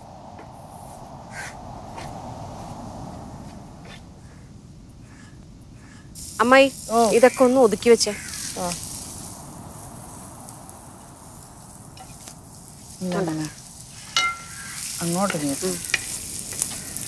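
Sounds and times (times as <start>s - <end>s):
onion sizzling in oil: 6.2s - 17.0s.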